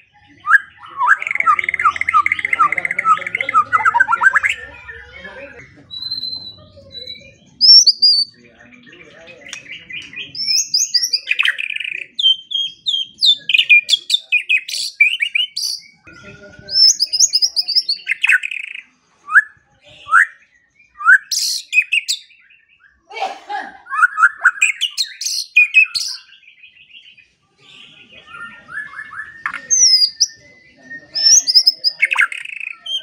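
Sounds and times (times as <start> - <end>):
bird singing whistled song: 0.4 - 4.7, 5.9 - 8.4, 9.5 - 16.1, 16.7 - 23.0, 23.9 - 27.2, 28.2 - 33.0.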